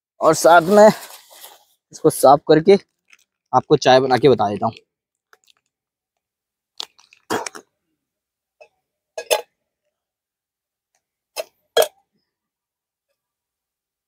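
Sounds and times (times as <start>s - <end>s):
camping cookware clinking: 9.2s - 9.5s.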